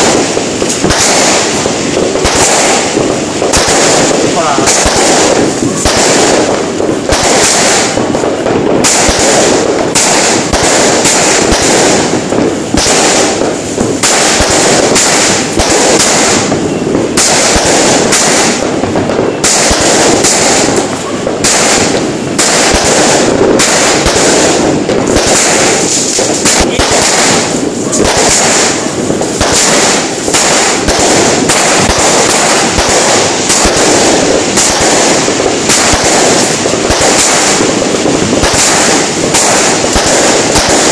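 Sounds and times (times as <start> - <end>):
fireworks popping and crackling: 0.0 - 40.9
heavy firework bursts: 0.0 - 40.9.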